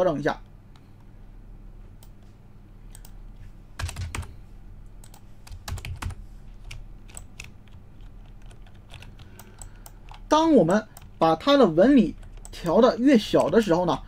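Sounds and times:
low electrical hum: 0:00.0 - 0:14.0
computer keyboard typing: 0:03.8 - 0:04.3, 0:05.0 - 0:14.0.

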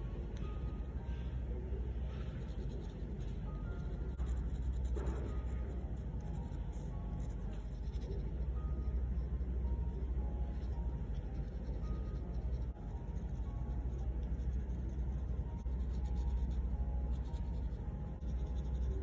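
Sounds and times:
pen nib scratching paper: 0:00.2 - 0:09.4, 0:10.4 - 0:19.0.

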